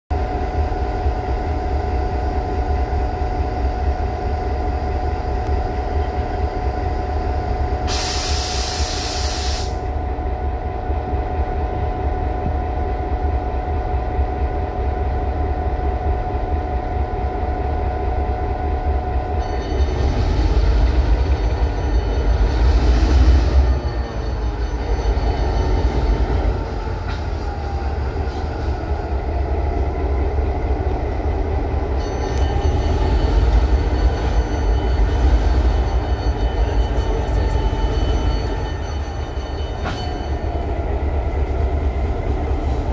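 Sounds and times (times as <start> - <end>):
train rumbling: 0.1 - 42.9
loud hiss: 7.9 - 9.9.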